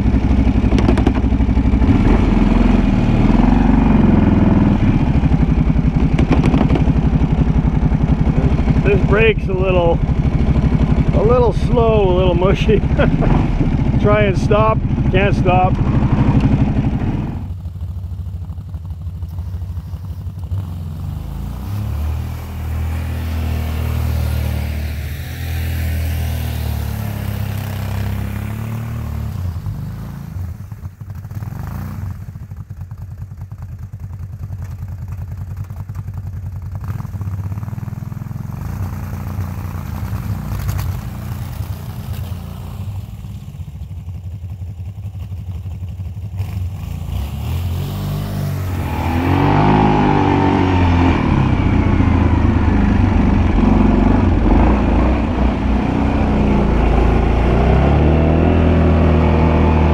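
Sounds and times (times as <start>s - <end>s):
quad bike engine revving: 0.0s - 32.6s, 35.8s - 43.8s, 46.1s - 59.9s.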